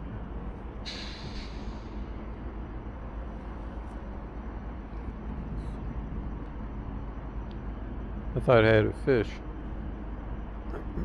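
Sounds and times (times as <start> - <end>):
low outdoor rumble: 0.0 - 11.0
brief hiss: 0.9 - 2.1.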